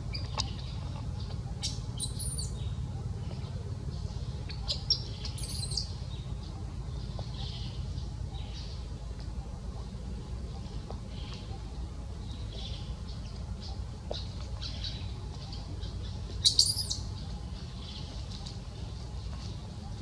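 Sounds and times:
infant monkey chirping cries: 1.6 - 2.6, 4.5 - 6.0, 16.4 - 17.1.

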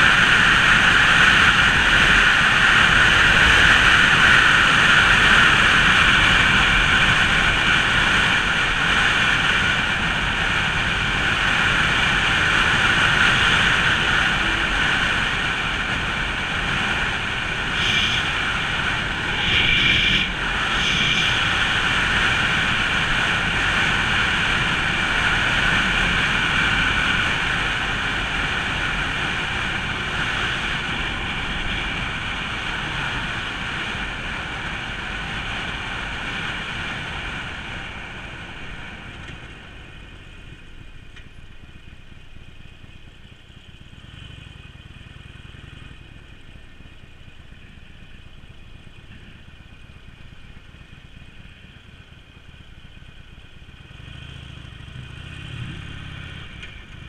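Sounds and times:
wind rush: 0.0 - 39.8
motorcycle engine running: 0.0 - 57.0
motorcycle idling: 0.0 - 57.0.

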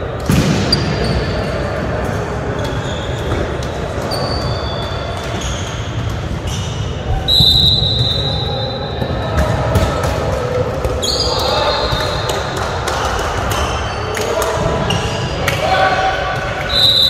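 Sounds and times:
players' voices: 0.0 - 17.0
sneakers squeaking on court floor: 2.6 - 9.9, 11.0 - 12.4.

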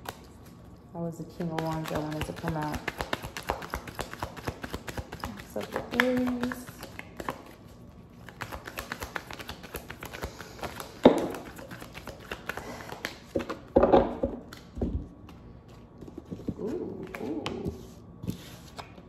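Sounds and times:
cards being shuffled: 1.5 - 13.7
cards knocking on table: 10.9 - 11.5.

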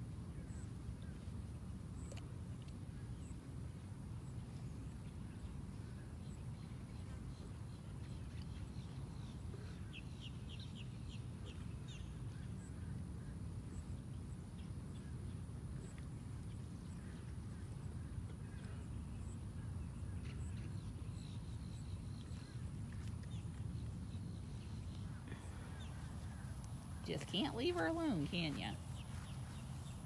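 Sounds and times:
low outdoor rumble: 14.3 - 30.0
birds chirping: 23.3 - 30.0.

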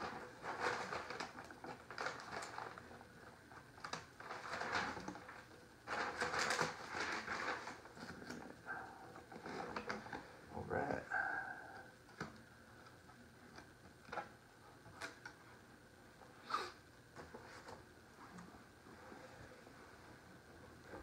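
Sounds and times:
paper backing rustling: 0.0 - 10.4.

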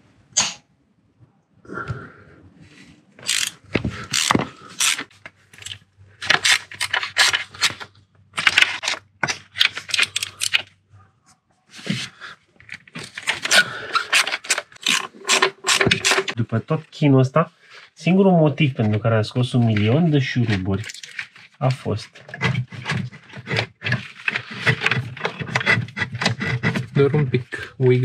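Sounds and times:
metal tools clattering: 13.1 - 16.4.

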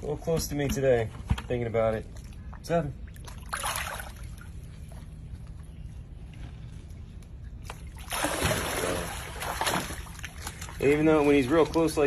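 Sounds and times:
loud water splash and churning: 3.1 - 4.4, 7.8 - 12.0.

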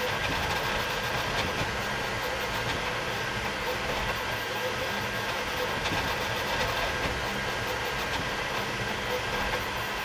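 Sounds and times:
printer mechanical whir and rattle: 0.0 - 10.0
faint high whine: 2.0 - 8.0.

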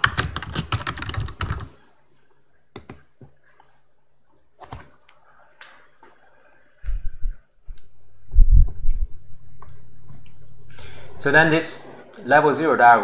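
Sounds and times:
keyboard typing: 0.0 - 1.7, 2.7 - 3.1.

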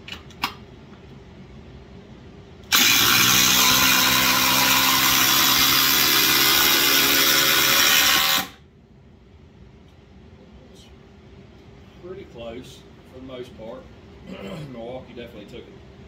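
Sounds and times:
impact drivers hammering screws: 2.7 - 8.6.

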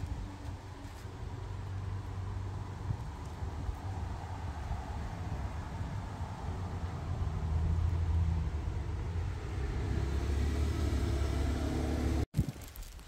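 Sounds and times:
engine rumble: 0.0 - 12.3.

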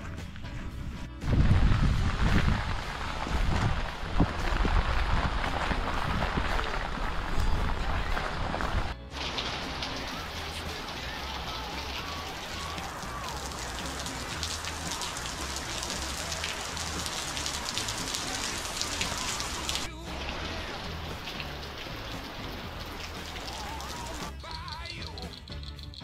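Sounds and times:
rain falling: 1.2 - 25.7
raindrops pattering: 1.2 - 26.0.

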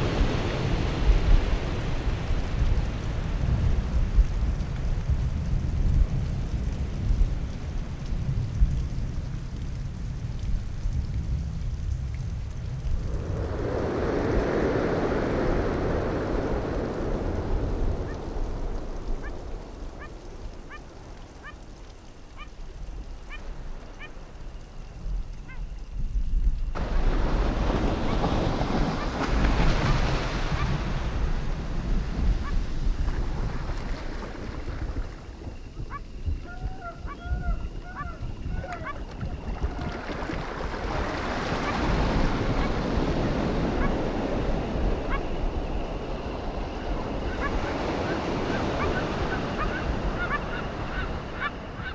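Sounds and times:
surf washing: 0.0 - 5.1, 12.6 - 22.0, 26.7 - 51.9
wind buffeting microphone: 0.0 - 51.9.

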